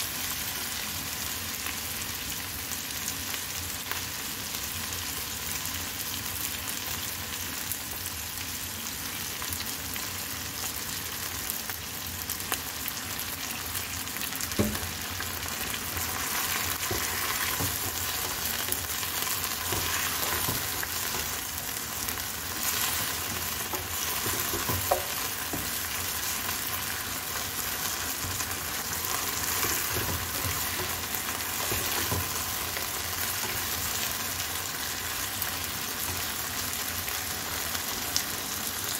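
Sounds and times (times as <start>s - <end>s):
food sizzling in a wok: 0.0s - 38.9s
wooden spatula scraping a pan: 16.0s - 21.4s, 22.6s - 26.4s, 29.0s - 33.8s
spatula knocking against pan: 23.7s - 25.8s.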